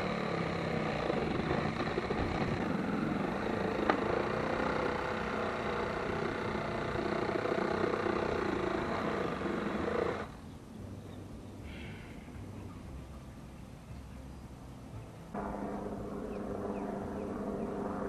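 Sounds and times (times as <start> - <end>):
motor running: 0.0 - 10.3, 15.4 - 18.0.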